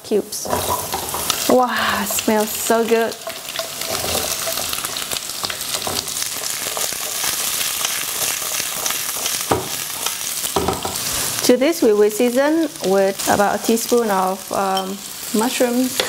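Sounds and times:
food sizzling in hot oil: 0.0 - 16.0
wok knocks: 9.5 - 9.8, 10.6 - 11.0.

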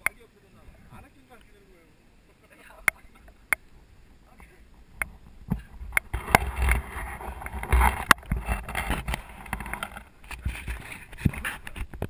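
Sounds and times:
wind buffeting microphone: 3.3 - 12.0.

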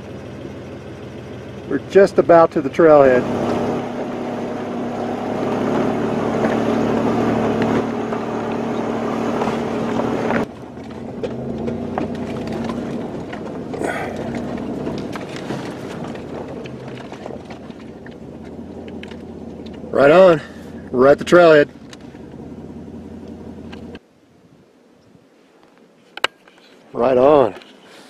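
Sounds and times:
vehicle knocks and rattles: 0.0 - 21.0
vehicle engine running: 0.0 - 24.0.

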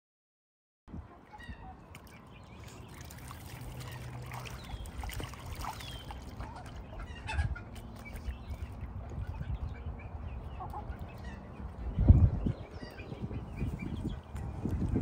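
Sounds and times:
ducks splashing in water: 1.2 - 12.0.

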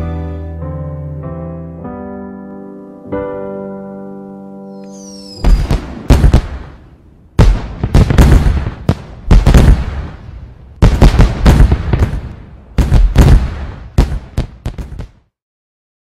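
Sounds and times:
fireworks exploding: 4.7 - 15.3.

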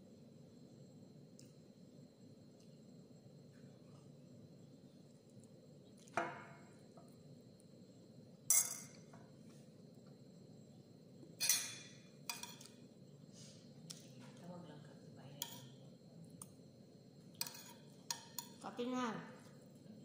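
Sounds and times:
tableware clinking and knocking: 6.2 - 6.6, 8.5 - 9.2, 11.4 - 12.7.

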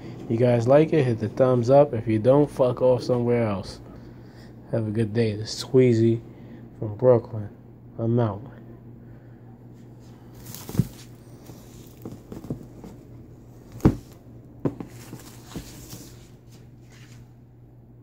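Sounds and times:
steady low hum: 0.0 - 18.0
plastic wrap crinkling: 10.3 - 13.0
knocks on cardboard box: 13.7 - 15.6.

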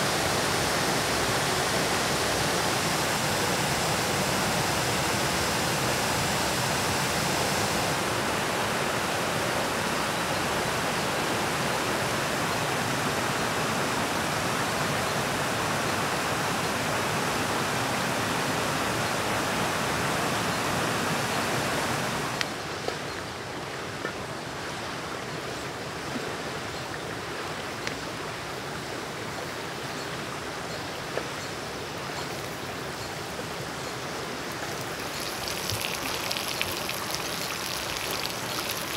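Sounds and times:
running water rushing: 0.0 - 38.9.

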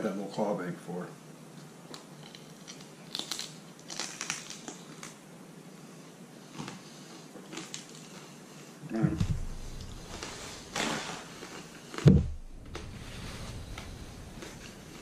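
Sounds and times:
chewing crunchy food: 1.9 - 5.2, 6.5 - 8.7, 9.6 - 12.0.

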